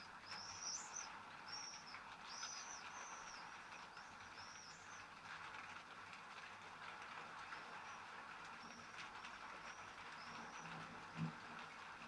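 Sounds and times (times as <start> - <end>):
faint steady hiss: 0.0 - 12.0
songbird chirping: 0.2 - 5.1, 7.6 - 10.7.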